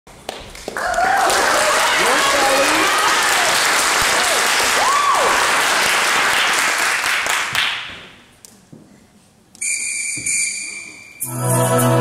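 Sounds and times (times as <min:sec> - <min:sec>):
audience applauding: 0:00.3 - 0:07.8
cheer sliding in pitch: 0:04.7 - 0:05.5.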